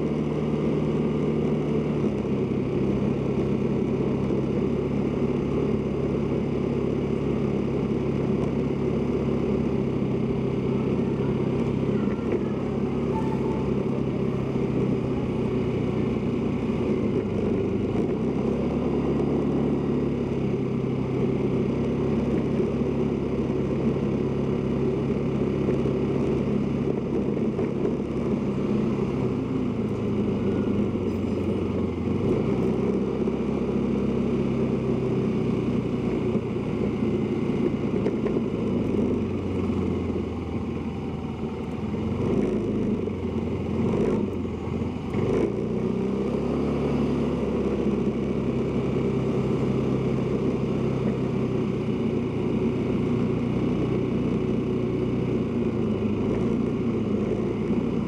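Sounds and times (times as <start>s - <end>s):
motorcycle engine running: 0.0s - 58.0s
road and wind noise: 0.0s - 58.0s.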